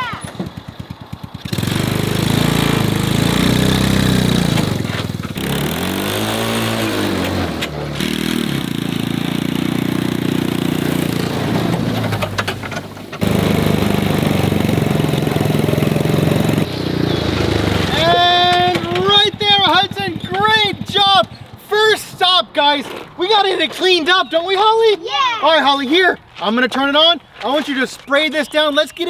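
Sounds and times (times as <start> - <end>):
small gasoline engine running: 0.0 - 21.7.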